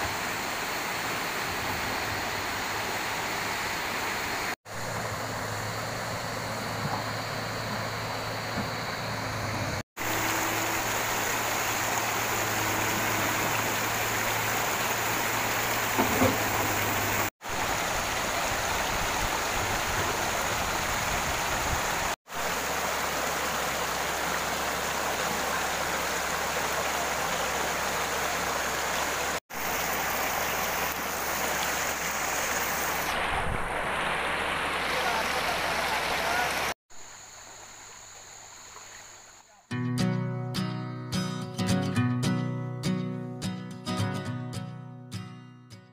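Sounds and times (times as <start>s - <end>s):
river rushing over rocks: 10.0s - 36.8s.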